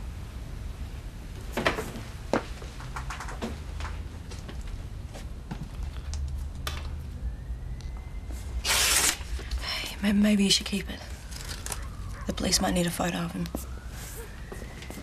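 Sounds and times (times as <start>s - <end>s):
soft footsteps: 13.5s - 15.0s.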